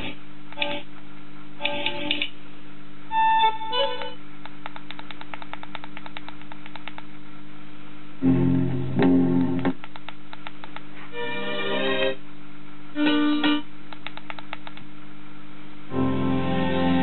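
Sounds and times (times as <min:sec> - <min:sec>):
steady low hum: 0:00.0 - 0:17.0
fast run of clicks: 0:04.4 - 0:07.1, 0:09.7 - 0:10.9, 0:13.9 - 0:14.9.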